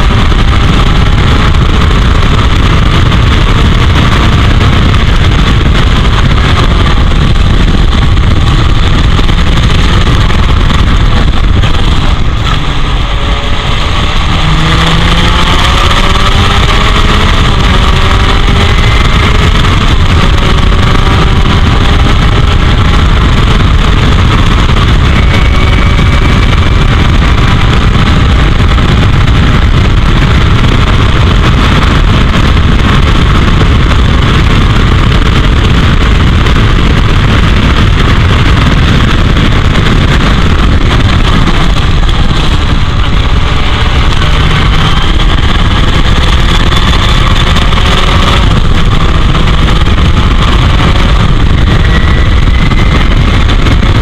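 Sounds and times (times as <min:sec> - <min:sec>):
race car engine at full throttle: 0:00.0 - 0:54.0
wind noise on microphone: 0:00.0 - 0:54.0.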